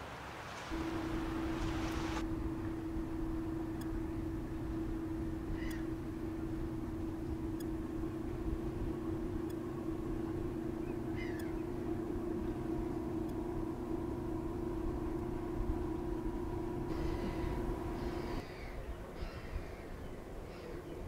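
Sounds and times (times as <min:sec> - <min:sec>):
diesel engine drone: 0:00.2 - 0:18.8
bird call: 0:05.4 - 0:06.6, 0:10.8 - 0:11.8.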